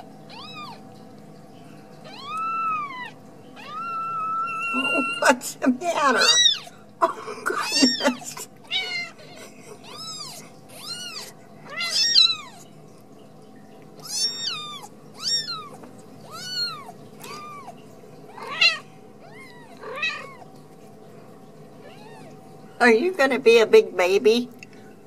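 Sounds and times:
kitten mewing: 2.0 - 5.4, 6.2 - 6.7, 7.5 - 12.6, 14.0 - 20.5.

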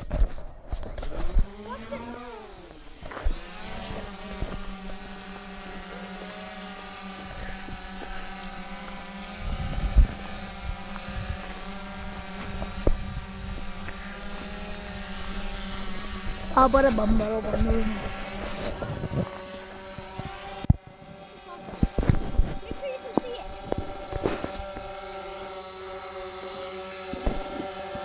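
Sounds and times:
drone propellers humming: 0.0 - 28.0
low thumps and sharp clicks: 8.8 - 14.0, 27.1 - 27.6.

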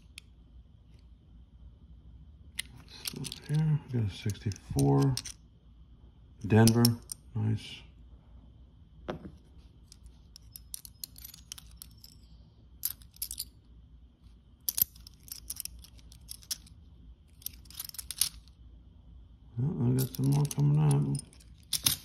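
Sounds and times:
coins clinking together: 20.0 - 22.0.

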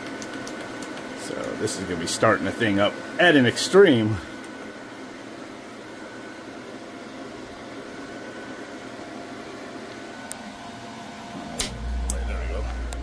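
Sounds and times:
steady machinery hum: 0.0 - 13.0
compressor deep hum: 10.1 - 13.0
sharp relay click: 11.6 - 12.3.

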